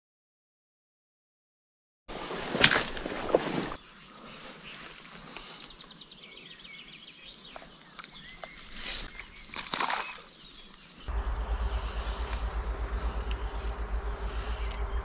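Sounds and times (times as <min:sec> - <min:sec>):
small birds singing: 0:03.8 - 0:11.1.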